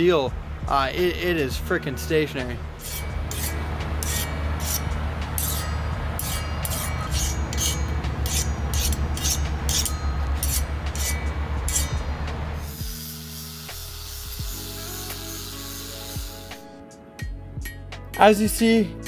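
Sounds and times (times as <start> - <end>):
steady low hum: 0.0 - 16.5
file scraping on steel: 2.8 - 16.5.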